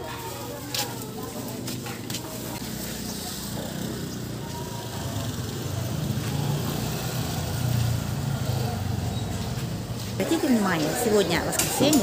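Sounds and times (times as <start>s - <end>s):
small motorcycle engine running: 2.2s - 10.4s.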